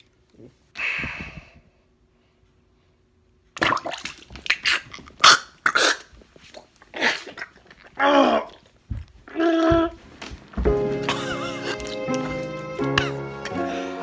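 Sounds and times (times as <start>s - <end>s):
man coughing and spluttering: 6.9s - 8.6s.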